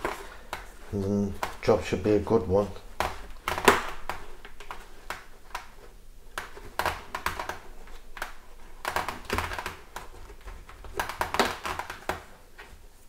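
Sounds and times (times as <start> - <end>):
helmet padding clicks and scuffs: 0.0 - 13.0.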